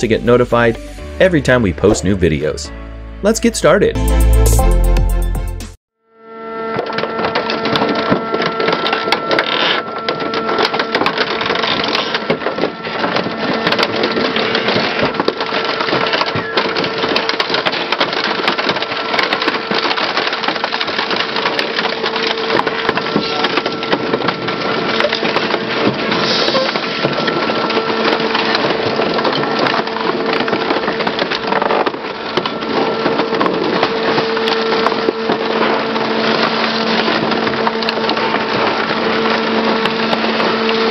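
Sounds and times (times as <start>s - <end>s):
metal and glass crunching: 6.8s - 40.9s
machine hum: 26.8s - 40.9s.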